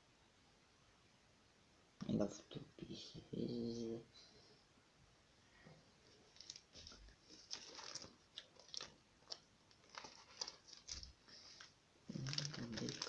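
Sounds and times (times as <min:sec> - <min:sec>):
plastic bag crinkling: 0:06.3 - 0:13.0.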